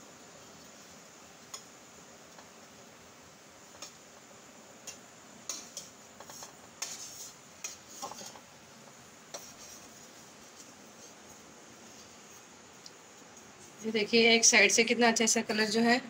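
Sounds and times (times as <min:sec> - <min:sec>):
spatula clicking on frying pan: 0:01.5 - 0:01.7, 0:03.7 - 0:04.0.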